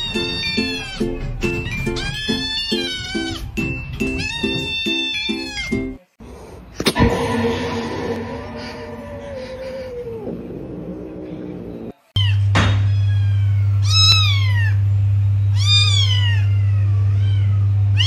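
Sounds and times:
cat whining meow: 0.0 - 5.8, 12.2 - 14.8, 15.5 - 18.0
sharp knock: 6.9 - 9.3
low hum: 6.9 - 12.0
kitten meowing: 12.2 - 14.8, 15.6 - 18.0.

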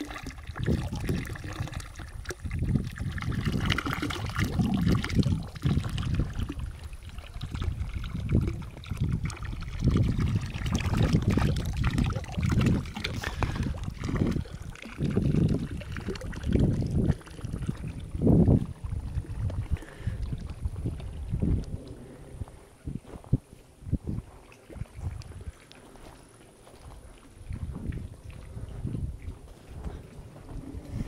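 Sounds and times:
water trickling in stone trough: 0.0 - 22.0, 24.1 - 31.0
wind buffeting microphone: 0.0 - 26.1, 26.8 - 31.0.

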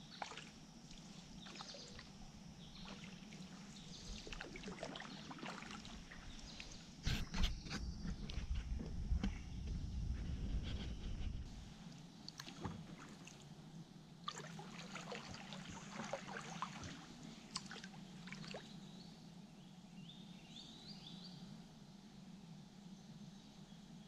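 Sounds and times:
paddle splashing water: 0.0 - 2.1, 2.7 - 7.3, 12.3 - 13.5, 14.3 - 18.7
low rumble: 7.5 - 11.6.

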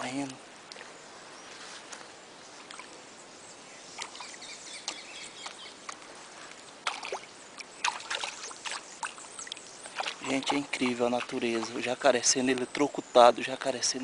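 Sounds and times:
river water trickling and lapping: 0.0 - 14.0.

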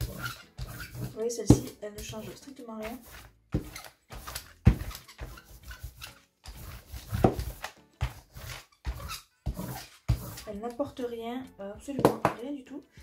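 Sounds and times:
brayer rolling over wet paint: 0.0 - 11.1.

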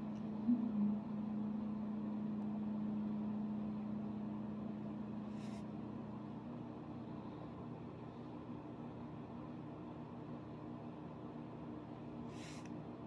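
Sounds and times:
steady low hum: 0.0 - 13.0
ink brush swishing on paper: 5.3 - 5.6.

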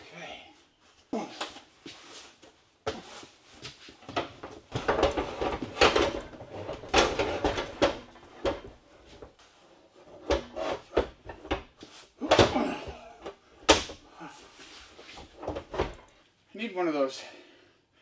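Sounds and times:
metal cabinet scraping and knocking: 4.1 - 9.4, 10.0 - 14.0, 15.1 - 16.0.

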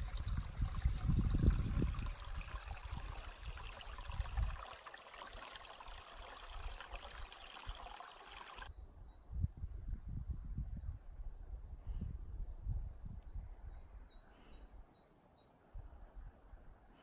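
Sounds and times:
wind buffeting microphone: 0.0 - 4.6, 8.7 - 14.0.

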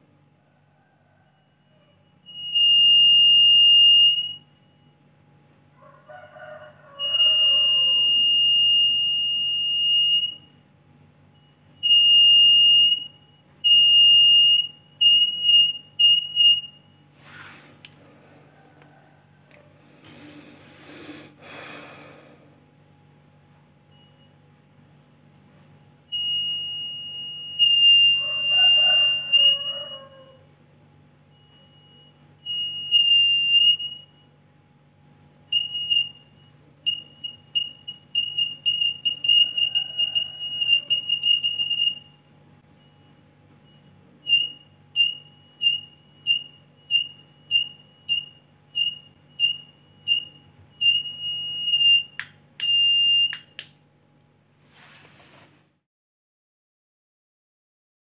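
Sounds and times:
electronic buzzer beeping: 2.2 - 4.5, 7.0 - 10.5, 11.4 - 18.1, 19.8 - 22.3, 25.4 - 30.0, 31.4 - 34.3, 35.5 - 42.2, 42.8 - 53.6
sharp clicks: 52.2 - 53.8.

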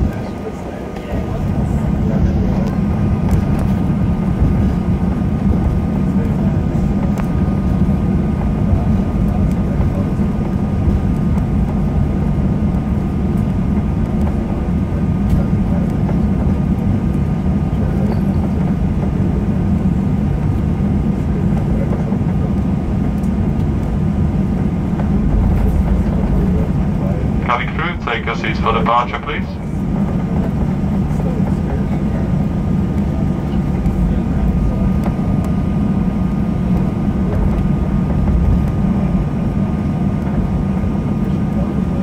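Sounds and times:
jet engines rumbling: 0.0 - 42.0
wheels rolling on taxiway: 0.0 - 42.0
faint steady whine: 24.4 - 31.4.

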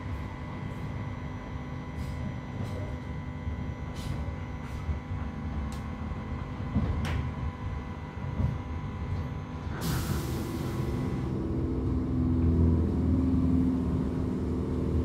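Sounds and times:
train carriage rumble: 0.0 - 15.0
burst of hiss: 9.8 - 10.8.

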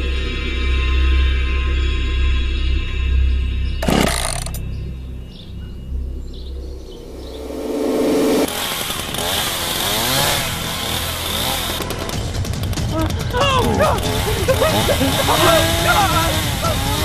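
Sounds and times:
low drone: 0.0 - 17.0
harsh motor buzz: 3.8 - 4.6, 8.2 - 17.0.

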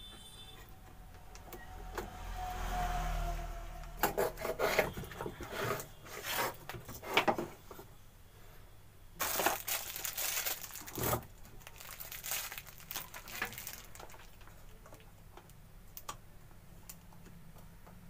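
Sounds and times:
scraping and rustling on workbench: 4.0 - 7.9.

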